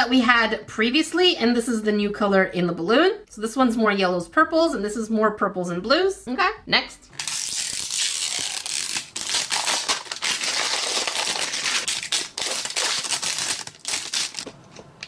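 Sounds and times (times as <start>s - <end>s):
plastic wrapping crinkling: 7.1s - 14.6s.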